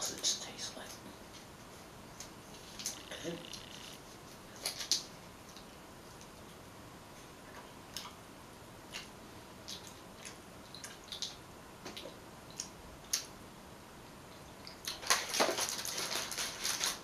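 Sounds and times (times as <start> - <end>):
plastic wrapper crinkling: 14.9 - 17.0.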